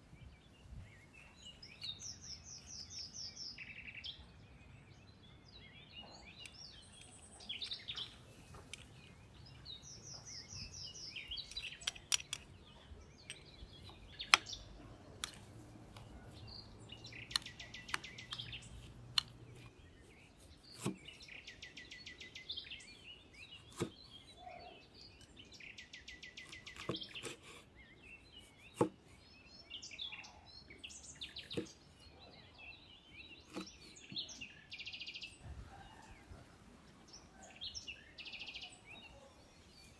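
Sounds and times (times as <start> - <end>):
birds chirping: 0.0 - 39.9
knife cutting on wooden board: 20.4 - 21.2, 23.6 - 24.0, 26.5 - 27.7, 33.5 - 34.1.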